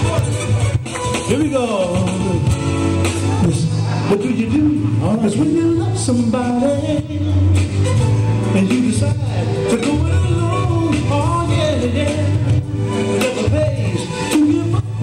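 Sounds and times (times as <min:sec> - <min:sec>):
heavy bass: 0:00.0 - 0:15.0
male vocal group singing: 0:08.5 - 0:15.0.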